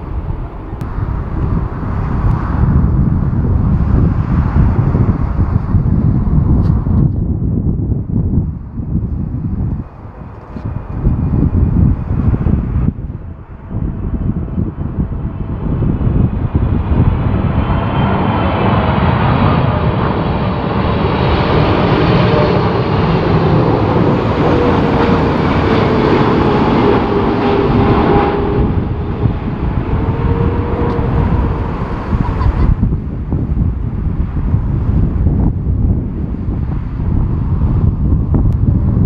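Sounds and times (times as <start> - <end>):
jet engines passing low: 0.0 - 39.0.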